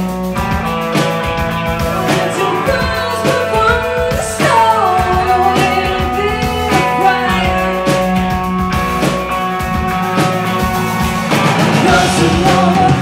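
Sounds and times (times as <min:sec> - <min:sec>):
rock band playing: 0:00.0 - 0:13.0
woman singing: 0:01.9 - 0:08.2.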